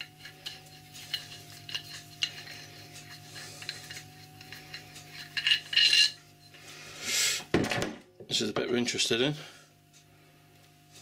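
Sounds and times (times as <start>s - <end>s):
metallic clicks and scrapes: 0.0s - 6.2s.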